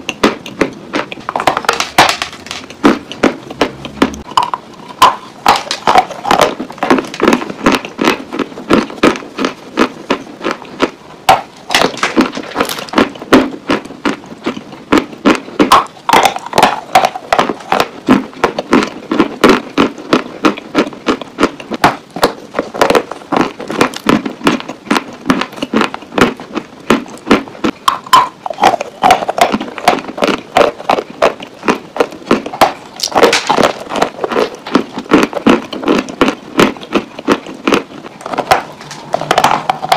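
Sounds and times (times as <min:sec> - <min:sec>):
clay being bitten and chewed: 0:00.0 - 0:39.9.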